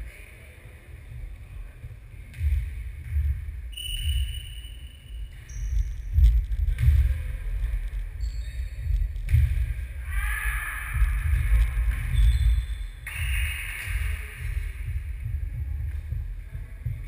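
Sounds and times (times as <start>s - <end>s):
heavy low rumble: 5.8s - 17.0s.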